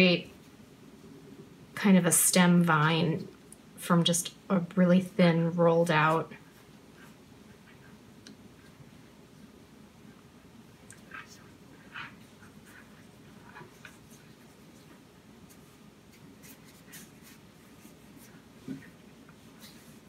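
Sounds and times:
hands rolling dough: 0:05.7 - 0:20.0.

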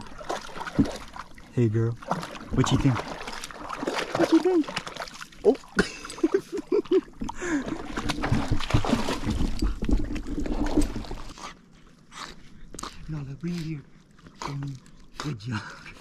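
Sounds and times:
dog splashing through water: 0:00.0 - 0:11.3.

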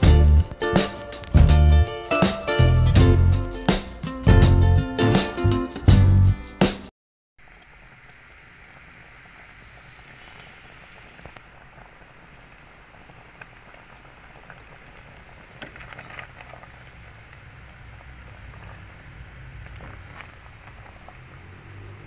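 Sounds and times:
stew bubbling in pot: 0:09.2 - 0:22.0.

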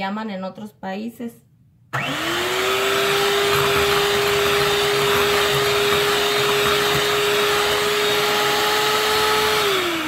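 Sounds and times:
electric hand mixer whisking: 0:02.0 - 0:10.0.

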